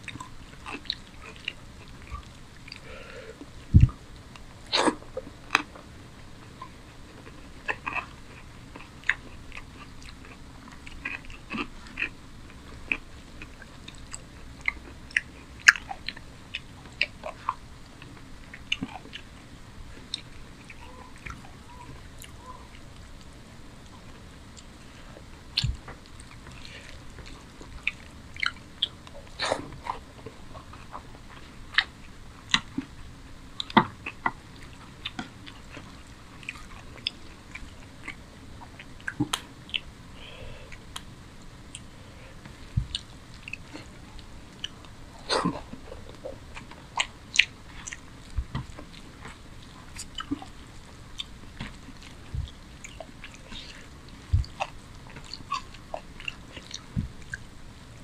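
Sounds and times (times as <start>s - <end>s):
person chewing food: 0.0s - 58.0s
mouth clicks and smacks: 23.8s - 32.9s, 33.6s - 41.1s, 41.7s - 57.5s.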